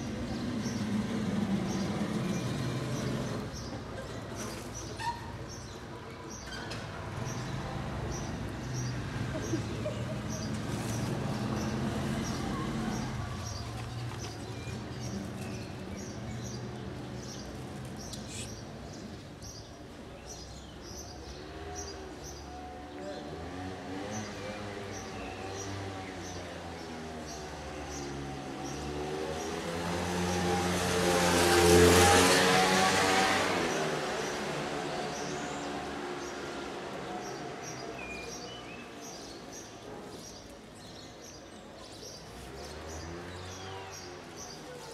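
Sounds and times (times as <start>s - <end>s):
small birds chirping: 0.0s - 22.5s, 33.6s - 44.9s
low traffic hum: 0.0s - 44.9s
vehicle passing: 7.0s - 14.2s.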